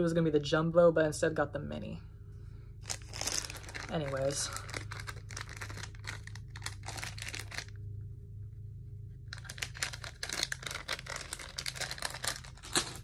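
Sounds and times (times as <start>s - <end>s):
plastic packaging crinkling: 2.8s - 7.8s, 9.3s - 13.0s.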